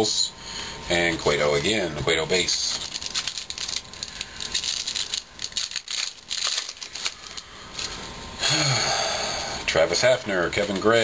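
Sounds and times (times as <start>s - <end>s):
foil wrapper crinkling and tearing: 2.3s - 8.0s.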